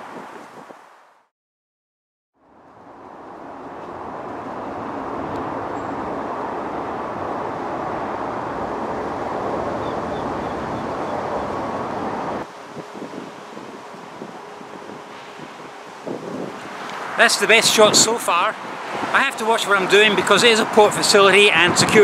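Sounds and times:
road traffic hum: 2.4 - 22.0.

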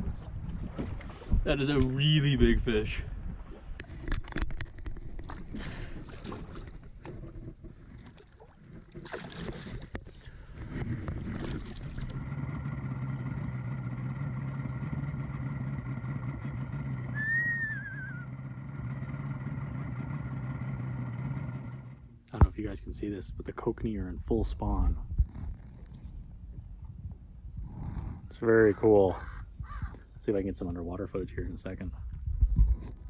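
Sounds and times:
water splashing: 0.0 - 21.0
low motor hum: 0.0 - 23.0, 23.6 - 30.1
high warbling bird call: 17.1 - 18.4.

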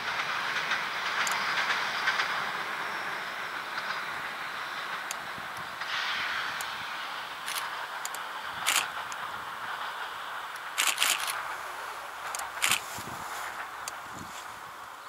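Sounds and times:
distant railcar rolling hiss: 0.0 - 15.0
sharp crackling clicks: 7.4 - 9.3, 10.5 - 14.0.

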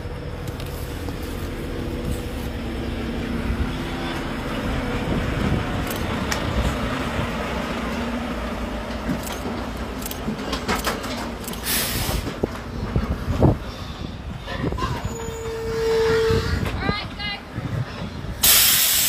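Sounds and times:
truck diesel engine driving past: 0.0 - 12.4.

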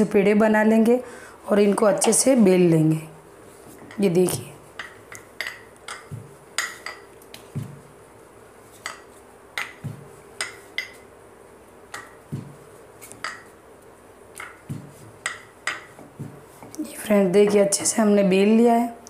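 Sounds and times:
rolling pin knocking on board: 9.6 - 11.0, 11.9 - 12.6, 14.4 - 16.7.

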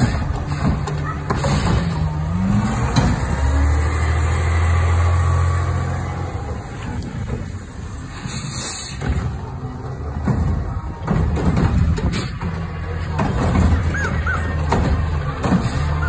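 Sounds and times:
truck engine humming: 0.0 - 16.0
air brake hiss: 8.1 - 9.1.

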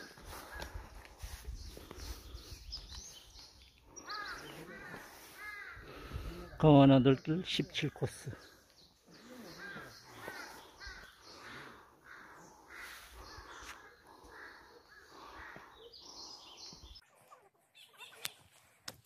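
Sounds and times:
crow cawing: 4.0 - 6.6, 9.1 - 16.7.

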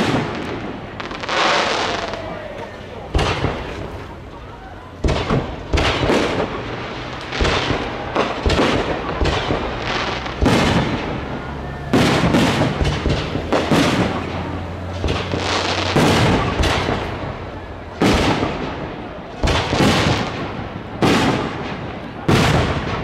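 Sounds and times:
firework crackling: 0.0 - 23.0
firework shells bursting: 11.9 - 17.4.

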